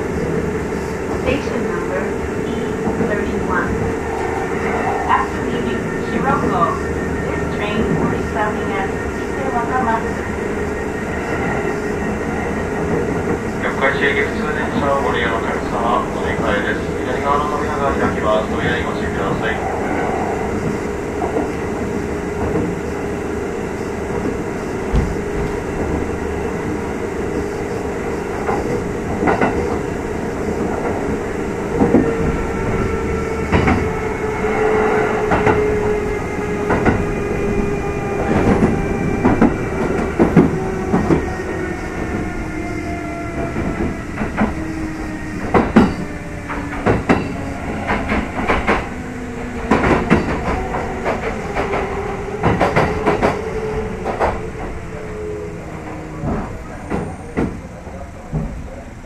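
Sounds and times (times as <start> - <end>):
rail joint clicks: 0.2 - 4.3, 23.8 - 58.8.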